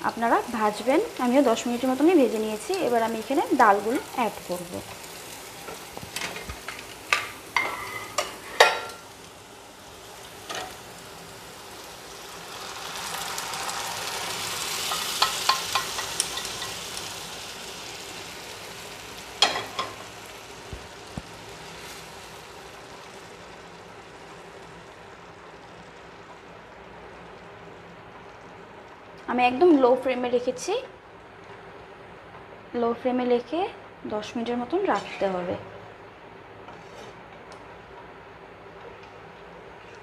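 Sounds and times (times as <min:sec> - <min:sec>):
food sizzling in pan: 0:00.0 - 0:31.9
spatula scraping frying pan: 0:34.9 - 0:35.4, 0:36.7 - 0:37.2.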